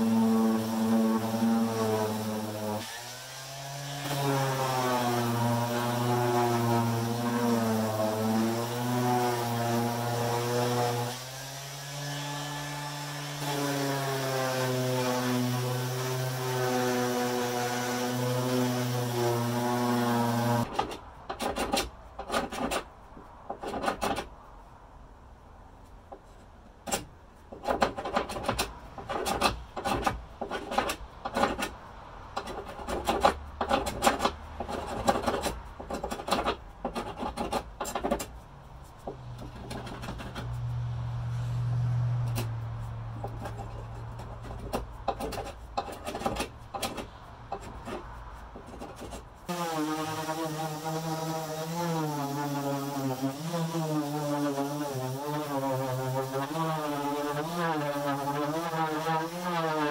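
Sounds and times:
orbital sander on wood: 0.0s - 20.7s, 49.5s - 59.9s
hand scraper scraping wood: 0.0s - 24.3s, 26.1s - 31.8s, 32.4s - 41.6s, 42.3s - 59.9s.

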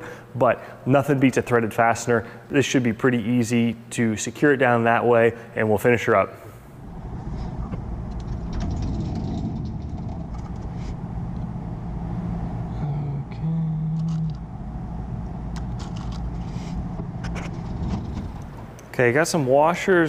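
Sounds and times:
low hum: 6.6s - 19.0s
low shop rumble: 6.6s - 20.0s.

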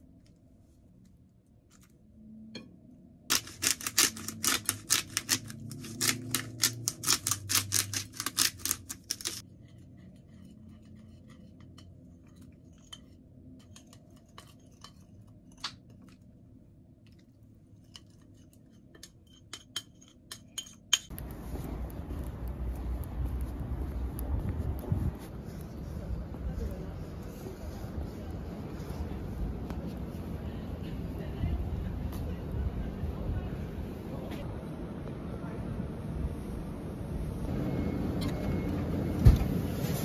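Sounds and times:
kitchen utensils clicking and scraping: 3.3s - 9.5s, 10.2s - 16.0s, 17.8s - 21.2s.

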